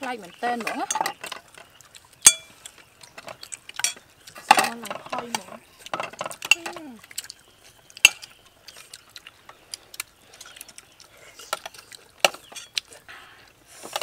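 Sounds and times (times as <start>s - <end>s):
people chewing: 0.0s - 14.0s
cutlery clinking on plates: 0.6s - 2.5s, 3.2s - 6.8s, 11.6s - 12.8s.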